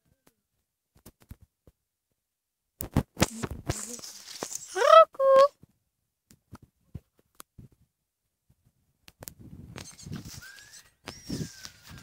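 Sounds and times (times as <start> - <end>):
phone rubbing against clothing: 9.7 - 12.0.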